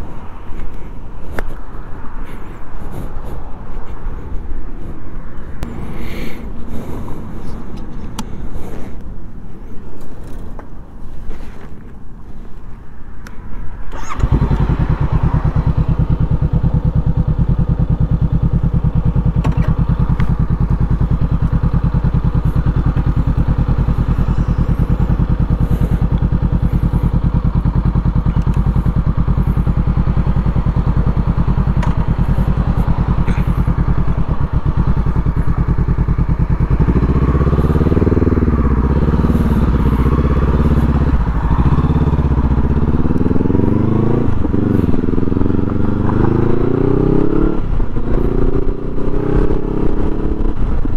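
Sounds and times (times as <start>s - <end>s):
motorcycle revving and pulling away: 13.8s - 50.9s
motorcycle engine idling: 13.9s - 50.9s.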